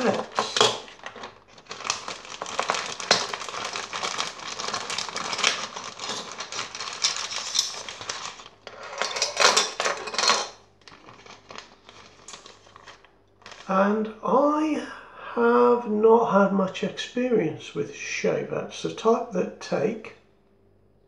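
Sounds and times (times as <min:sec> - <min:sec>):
plastic bag crinkling: 0:00.0 - 0:13.7.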